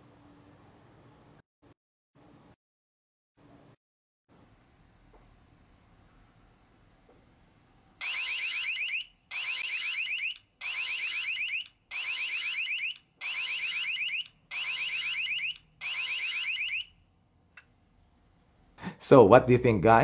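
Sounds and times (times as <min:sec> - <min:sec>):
doorbell siren chirping: 0:08.0 - 0:17.0.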